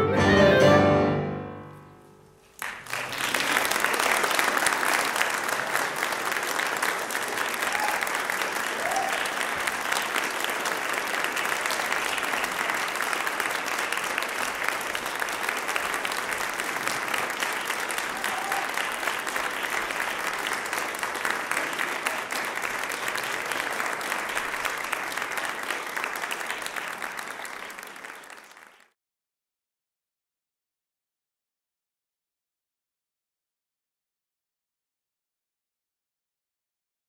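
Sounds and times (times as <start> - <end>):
audience applauding: 2.4 - 29.0.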